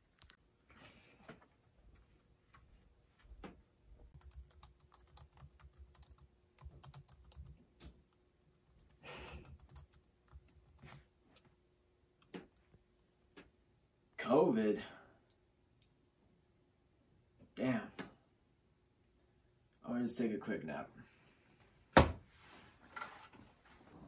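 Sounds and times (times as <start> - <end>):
typing on laptop keyboard: 4.1 - 8.0, 8.6 - 11.0.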